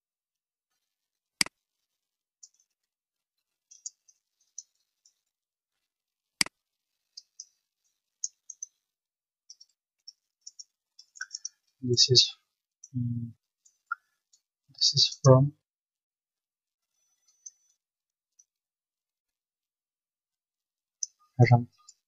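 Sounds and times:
sharp mouse clicks: 10.5s - 11.6s.

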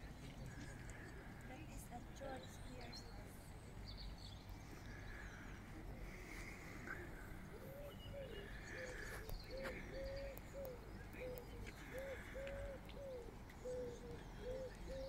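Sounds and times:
pigeon cooing: 6.9s - 15.0s.

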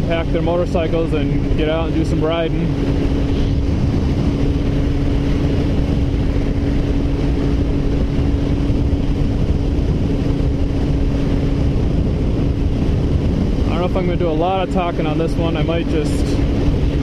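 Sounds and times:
motorcycle engine cruising: 0.0s - 17.0s
wind on microphone: 0.0s - 17.0s.

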